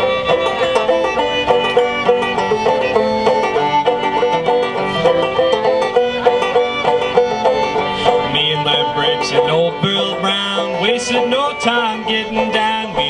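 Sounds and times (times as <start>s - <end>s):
fiddle bowed melody: 0.0s - 13.0s
plucked banjo notes: 0.0s - 13.0s.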